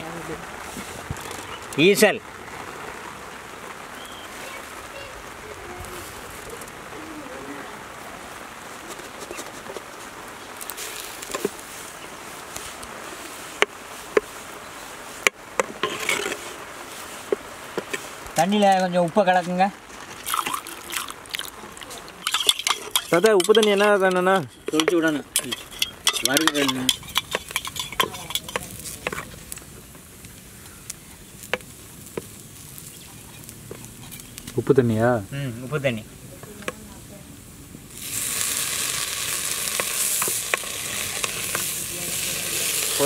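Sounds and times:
faint steady hiss: 0:00.0 - 0:43.0
termites roasting in a pot: 0:00.0 - 0:43.0
spoon clinking in steel tumbler: 0:22.2 - 0:28.8.

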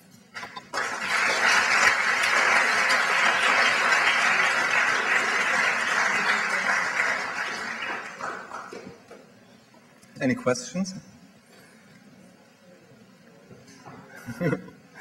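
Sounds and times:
audience applauding: 0:00.4 - 0:09.2.

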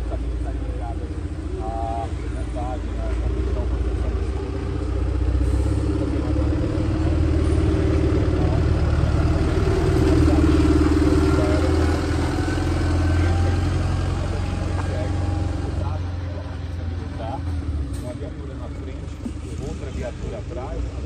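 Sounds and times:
diesel truck engine driving past: 0:00.0 - 0:21.0.

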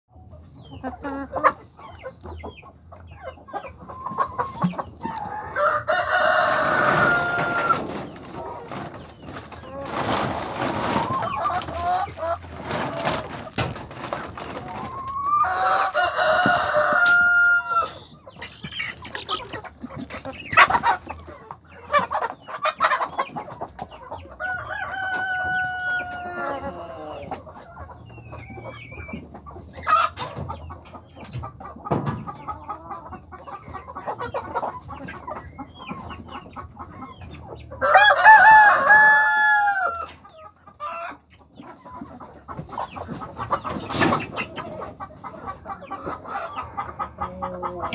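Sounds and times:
hens clucking: 0:00.1 - 0:47.9
rooster crowing: 0:05.6 - 0:07.8, 0:15.4 - 0:18.0, 0:24.4 - 0:27.0, 0:37.8 - 0:40.1.

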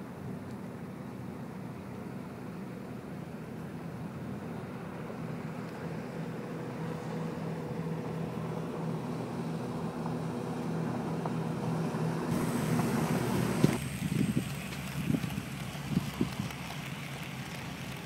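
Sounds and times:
low machinery hum: 0:00.0 - 0:18.0
outdoor background noise: 0:00.0 - 0:18.0
wind buffeting microphone: 0:12.3 - 0:18.0.

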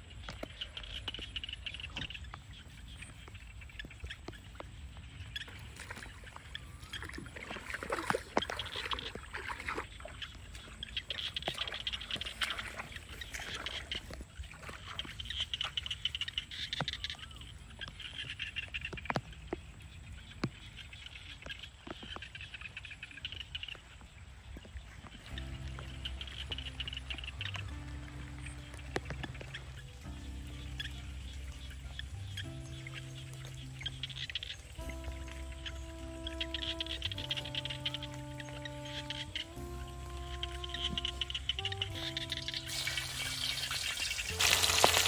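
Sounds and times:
frogs trilling: 0:00.0 - 0:45.0
bare feet splashing in mud: 0:00.2 - 0:39.6, 0:40.3 - 0:45.0.

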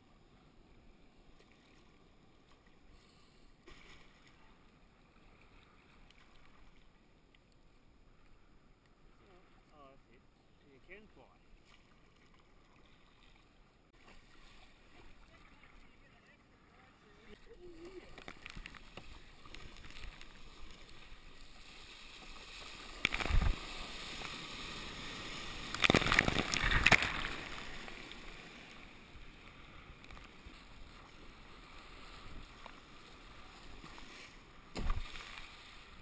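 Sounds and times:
rushing water: 0:09.2 - 0:36.0
water washing around hull: 0:17.0 - 0:36.0
loud splashing: 0:22.0 - 0:28.4.

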